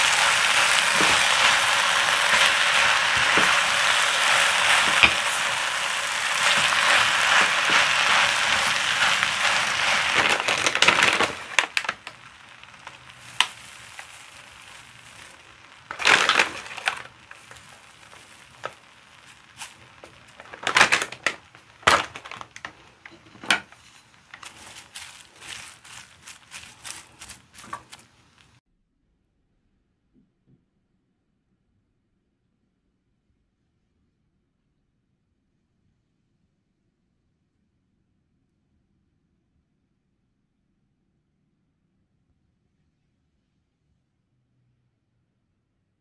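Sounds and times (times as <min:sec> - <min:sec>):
bag crinkling and rustling: 0:00.0 - 0:28.6
rice frying in a wok: 0:00.0 - 0:28.6
wooden spatula scraping wok: 0:00.0 - 0:28.6.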